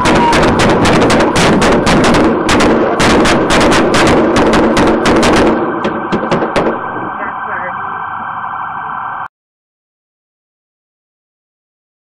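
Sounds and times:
rapid gunfire: 0.0 - 6.9.

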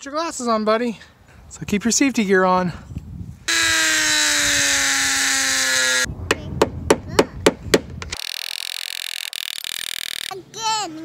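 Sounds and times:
rotary tool grinding metal: 3.5 - 6.1, 8.1 - 10.4
sharp knocks: 6.3 - 8.2.

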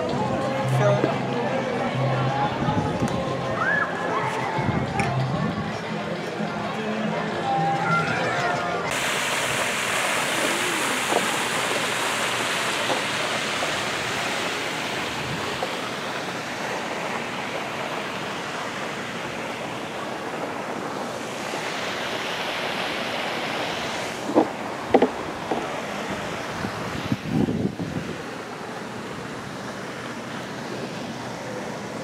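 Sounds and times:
pond fountain splashing: 8.9 - 32.0.

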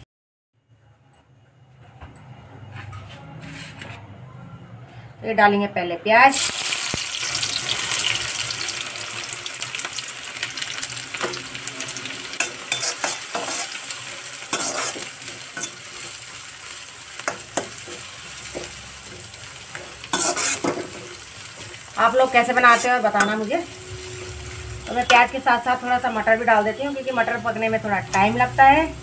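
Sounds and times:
onion sizzling in hot oil: 6.3 - 29.0
spatula scraping a pan: 12.4 - 16.4, 17.2 - 21.9, 22.5 - 25.2.

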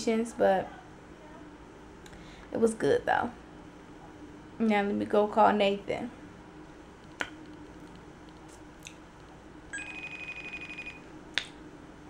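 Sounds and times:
phone call beep: 9.7 - 11.0.

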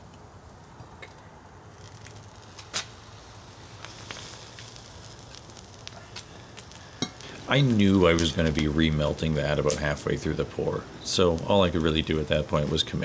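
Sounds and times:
molten metal crackling and hissing: 0.0 - 13.0.

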